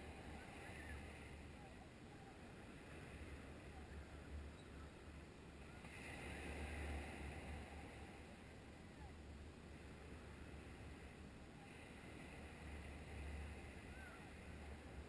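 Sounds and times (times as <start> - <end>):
waves washing onto beach: 0.0 - 15.0
wind rumble on microphone: 0.0 - 15.0.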